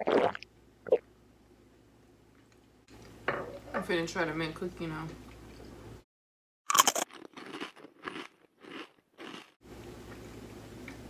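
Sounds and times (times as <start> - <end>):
room background hum: 0.0 - 6.1, 6.7 - 11.0
chewing: 6.7 - 9.6
loud crunch of a bite: 6.7 - 9.6.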